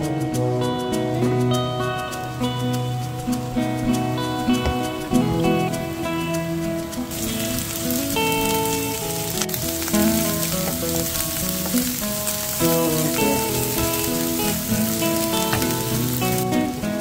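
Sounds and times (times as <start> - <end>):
background music: 0.0 - 17.0
fish sizzling in hot oil: 3.9 - 17.0.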